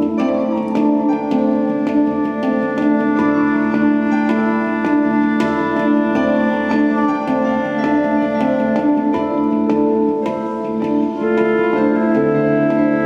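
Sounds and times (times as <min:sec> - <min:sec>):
handpan notes ringing: 0:00.0 - 0:13.0.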